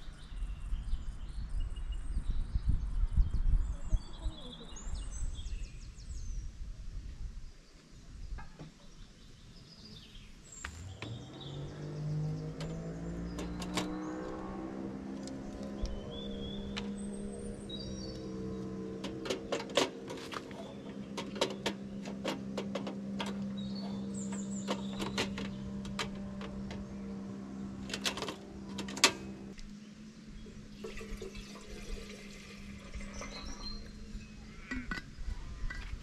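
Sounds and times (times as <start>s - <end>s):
steady low hum: 10.4s - 36.0s.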